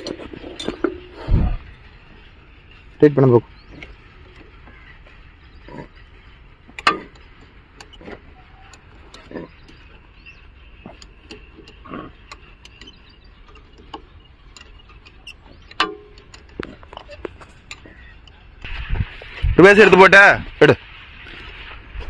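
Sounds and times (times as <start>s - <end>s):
spanner and bolts clinking: 0.0s - 3.2s, 5.7s - 18.7s.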